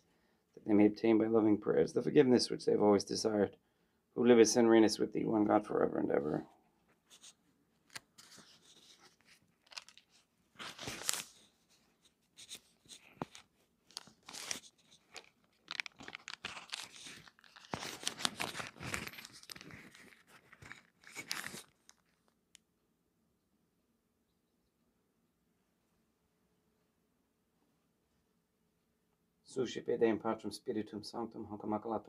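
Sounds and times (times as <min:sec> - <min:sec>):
cloth and paper rustling: 0:06.3 - 0:22.4.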